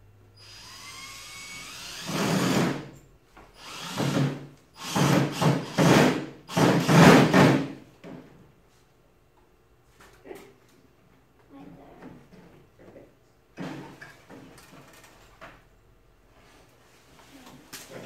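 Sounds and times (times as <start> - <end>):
cordless drill whine: 0.4 - 2.7, 3.6 - 5.8
drill drilling into wood: 0.4 - 3.0, 3.6 - 7.6.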